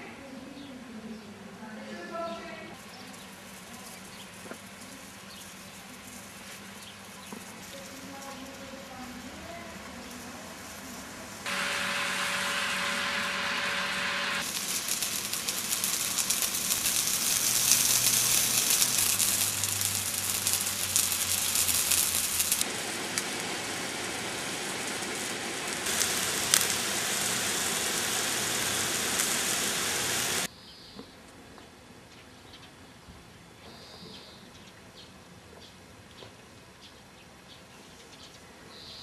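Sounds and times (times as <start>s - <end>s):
sprinkler spraying water: 2.8s - 30.5s
steady tone: 11.5s - 14.4s.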